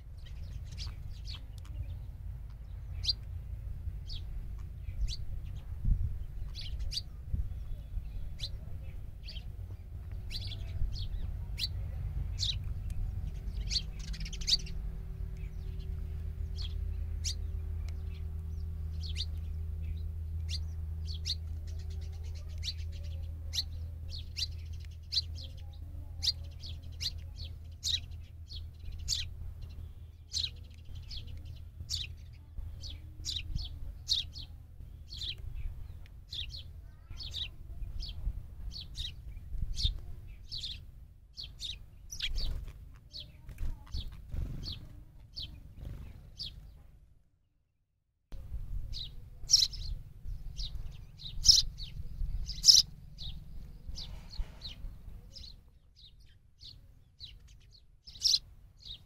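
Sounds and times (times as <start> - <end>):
sparrows chirping: 0.0 - 47.1, 48.3 - 59.0
wings fluttering: 42.1 - 46.8.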